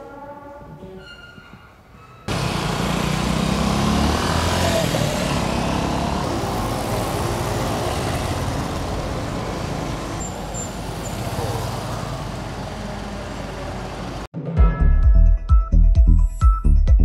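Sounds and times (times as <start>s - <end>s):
traffic noise: 1.0s - 14.3s
vehicle engine running nearby: 2.3s - 14.3s.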